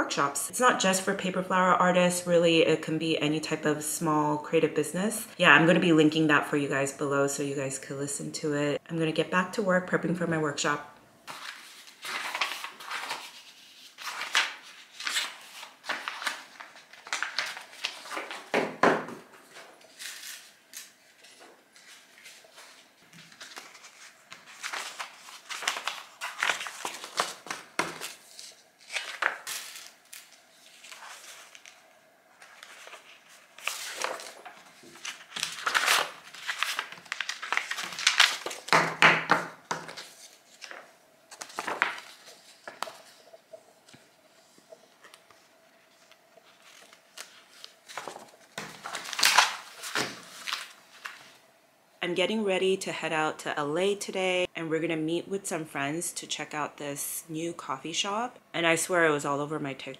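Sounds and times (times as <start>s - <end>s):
paper rustling and crinkling: 11.3s - 51.4s.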